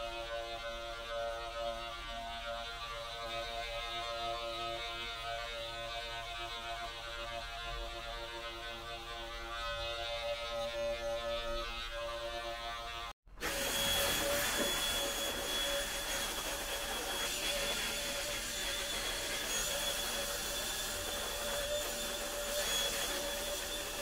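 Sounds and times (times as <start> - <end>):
electric clippers buzzing: 0.0 - 24.0
handheld vacuum whining: 7.8 - 24.0.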